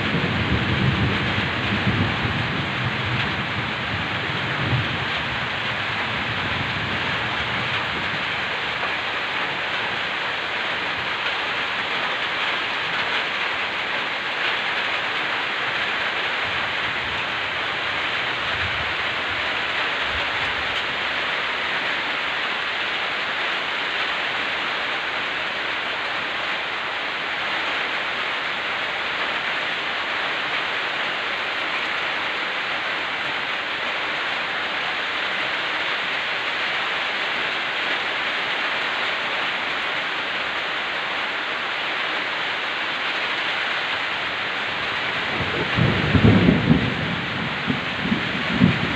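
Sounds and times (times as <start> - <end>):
low thunder rumbles: 0.0 - 8.8, 44.6 - 48.9
heavy rain: 0.0 - 48.9.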